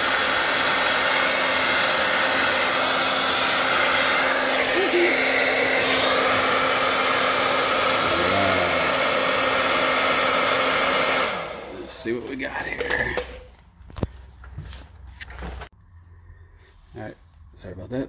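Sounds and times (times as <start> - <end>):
hair dryer blowing: 0.0 - 12.7.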